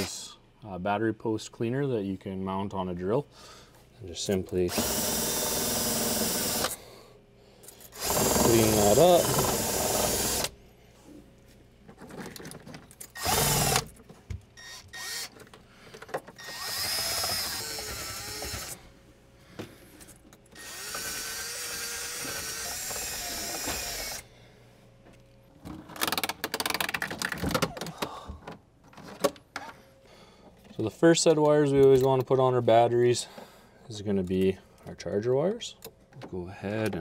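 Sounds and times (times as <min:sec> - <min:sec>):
cordless drill spinning brush: 0:04.7 - 0:06.8, 0:08.0 - 0:10.5, 0:16.4 - 0:18.8, 0:20.6 - 0:24.2.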